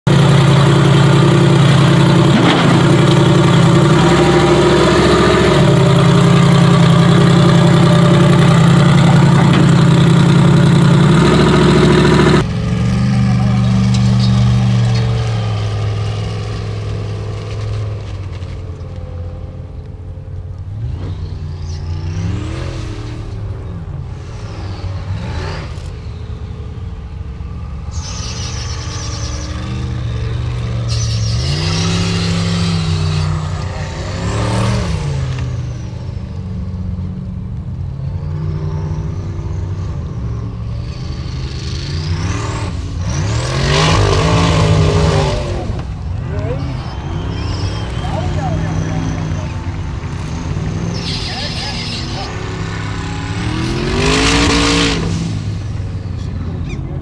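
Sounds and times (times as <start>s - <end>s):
engine revving hard: 0.1s - 12.5s, 28.0s - 35.7s, 40.9s - 55.7s
turbo whistle: 27.9s - 30.2s, 30.8s - 32.1s, 46.6s - 49.6s.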